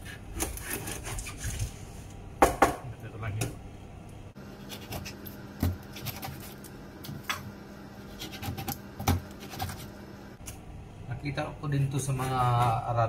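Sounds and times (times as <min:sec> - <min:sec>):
knife scraping fish: 0:00.0 - 0:01.8, 0:04.6 - 0:06.7, 0:08.0 - 0:09.9.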